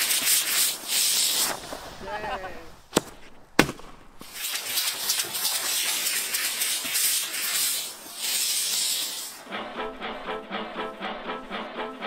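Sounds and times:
rocket motor hissing: 0.0s - 1.8s, 4.3s - 9.4s.

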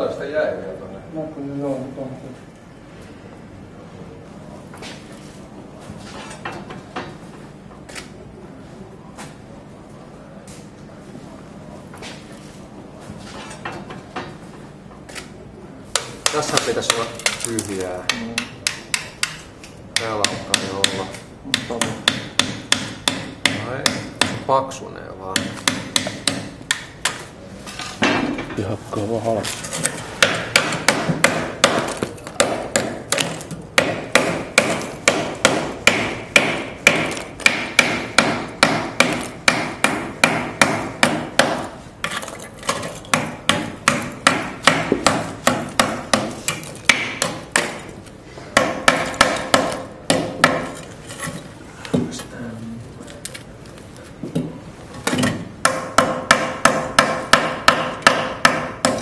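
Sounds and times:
hammer striking plaster mould: 16.0s - 17.4s, 18.0s - 19.4s, 20.0s - 24.5s, 25.4s - 27.2s, 30.2s - 47.9s, 48.5s - 50.8s, 54.3s - 59.0s.

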